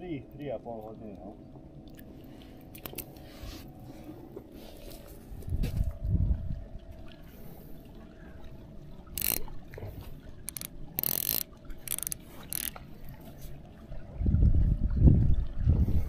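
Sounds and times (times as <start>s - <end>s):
faint steady hum: 0.0s - 16.0s
fishing reel ratcheting clicks: 9.1s - 9.5s, 10.5s - 12.8s.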